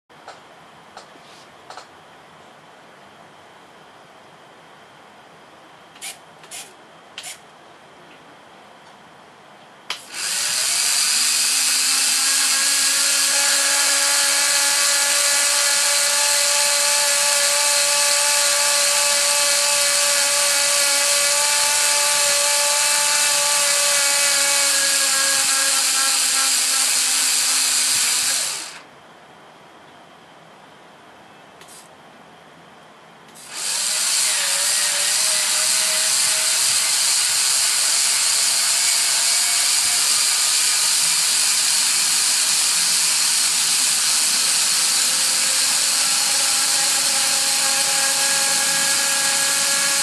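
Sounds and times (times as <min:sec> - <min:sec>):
gear motor whining: 0:10.0 - 0:28.8.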